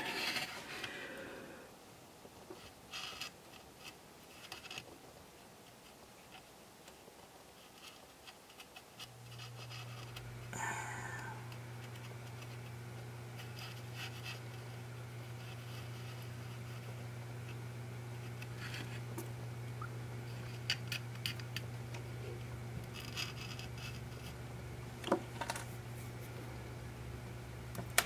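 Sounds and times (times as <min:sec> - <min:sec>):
steady low hum: 0:00.0 - 0:02.7, 0:09.0 - 0:28.0
paint applicator scratching plastic: 0:07.6 - 0:10.3, 0:13.4 - 0:17.6, 0:22.8 - 0:24.4.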